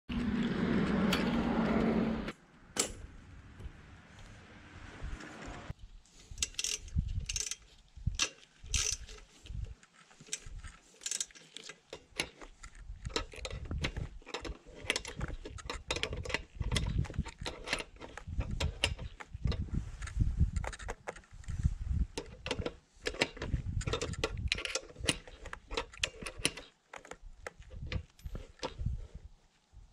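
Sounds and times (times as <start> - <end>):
ratchet wrench clicking: 6.4 - 7.6, 8.2 - 9.2.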